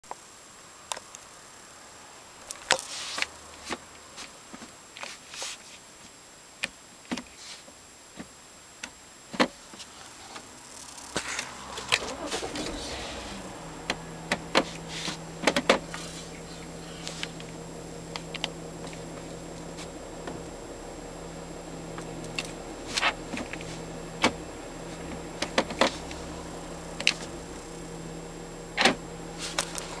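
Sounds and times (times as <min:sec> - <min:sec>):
steady low hum: 0:08.5 - 0:30.0.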